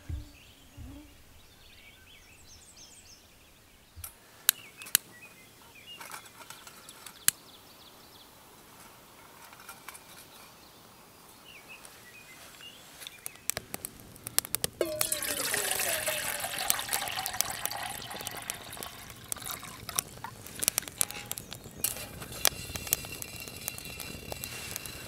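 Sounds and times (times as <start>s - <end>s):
faint bird chirps: 0.0s - 8.4s.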